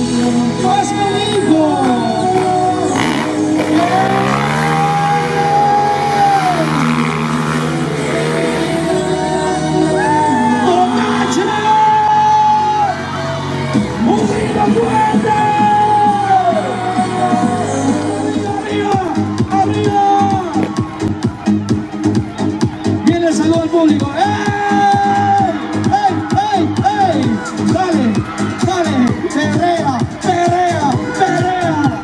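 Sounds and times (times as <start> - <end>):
steady bass: 0.0 - 32.0
person singing long bending notes: 2.3 - 10.6.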